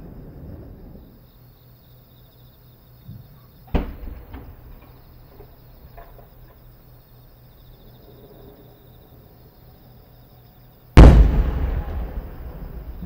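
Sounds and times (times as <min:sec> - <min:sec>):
crickets chirping: 0:00.0 - 0:13.0
faint firework pops: 0:03.1 - 0:06.3, 0:11.0 - 0:13.0
firework launch bang: 0:03.7 - 0:05.5, 0:11.0 - 0:13.0.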